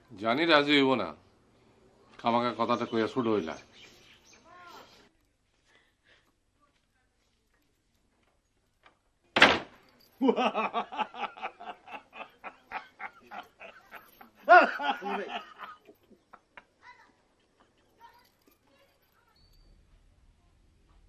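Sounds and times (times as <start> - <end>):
man laughing hard: 10.2 - 15.9.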